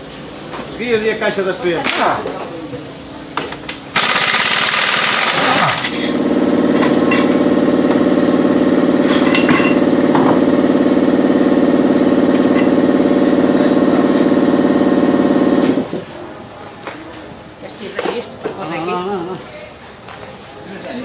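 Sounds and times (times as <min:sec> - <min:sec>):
pneumatic impact wrench: 0:01.8 - 0:02.4, 0:03.4 - 0:16.0
loud mechanical drone with rattle: 0:03.0 - 0:16.6.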